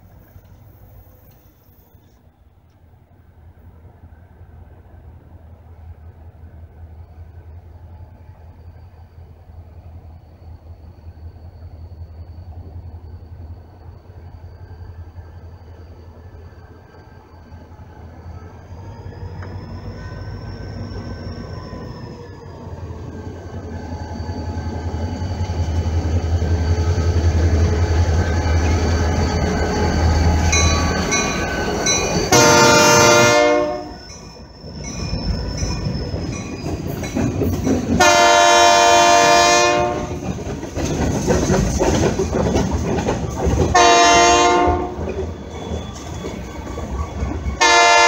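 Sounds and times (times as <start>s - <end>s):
train rumble and rolling clatter: 0.0s - 48.0s
locomotive air horn blasts: 32.3s - 34.0s, 38.0s - 40.2s, 43.7s - 45.0s, 47.6s - 48.0s.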